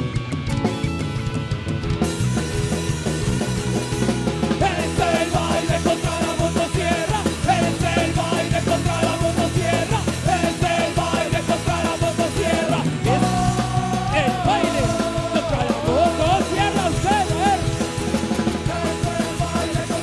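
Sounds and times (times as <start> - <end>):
punk rock band playing: 0.0 - 20.0
singer's voice: 4.6 - 20.0.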